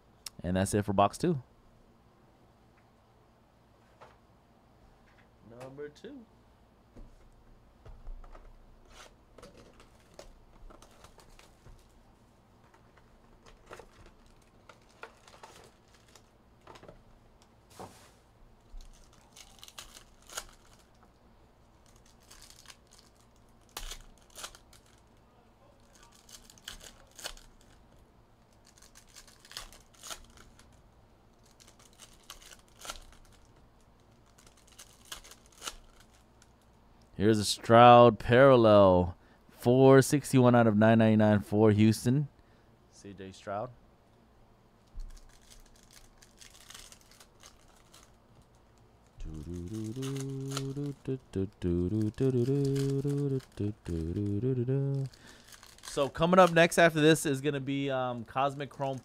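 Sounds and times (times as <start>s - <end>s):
card pack wrappers tearing: 13.5s - 16.3s, 18.8s - 21.0s, 21.8s - 25.1s, 25.8s - 27.8s, 28.5s - 36.6s, 45.0s - 57.2s.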